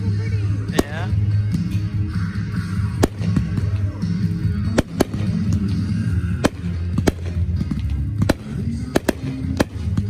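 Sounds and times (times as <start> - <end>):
music with heavy bass: 0.0 - 10.0
firework bangs: 0.7 - 1.2, 2.9 - 3.8, 4.6 - 10.0.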